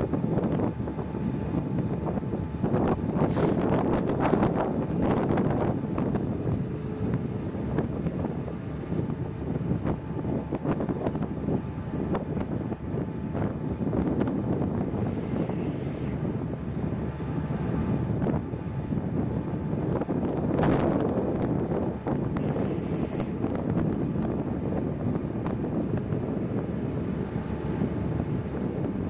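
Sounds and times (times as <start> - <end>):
boat engines rumbling: 0.0 - 29.0
wind buffeting microphone: 0.0 - 29.0.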